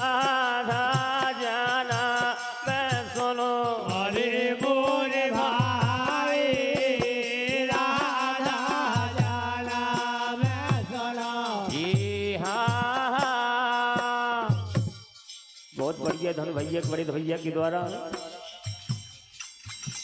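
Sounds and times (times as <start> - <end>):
men singing in chorus: 0.0 - 14.9
small hand cymbals: 0.0 - 20.0.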